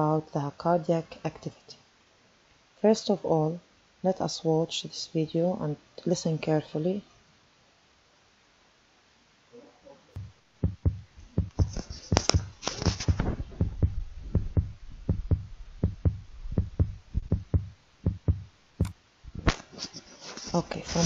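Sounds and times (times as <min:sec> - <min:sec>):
heartbeat thumps: 0:10.2 - 0:19.5.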